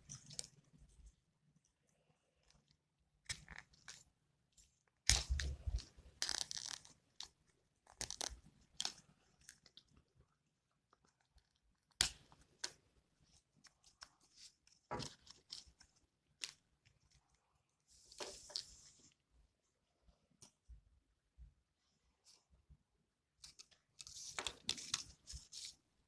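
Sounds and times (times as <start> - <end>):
plastic straws crinkling and tapping: 4.8 - 17.4, 23.4 - 25.8.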